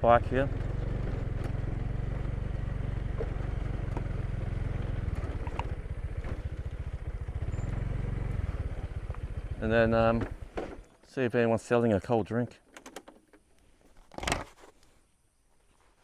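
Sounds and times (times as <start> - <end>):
motorcycle engine idling: 0.0 - 10.9.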